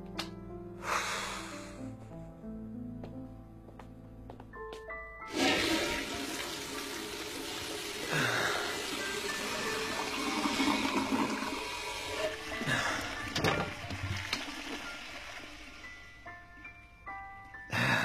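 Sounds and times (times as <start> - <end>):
water rushing: 5.3 - 15.8.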